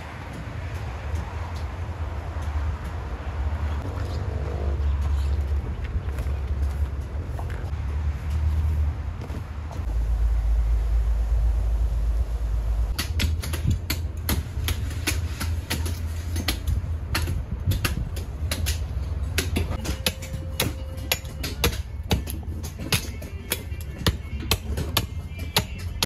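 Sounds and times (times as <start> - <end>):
low rumble: 0.0 - 13.0
knife striking coconut shells: 12.9 - 26.0.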